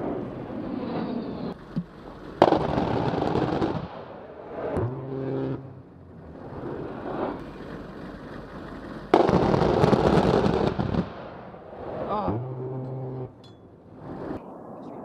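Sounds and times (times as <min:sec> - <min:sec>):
rotary cannon burst: 0:00.0 - 0:05.6, 0:06.5 - 0:12.1.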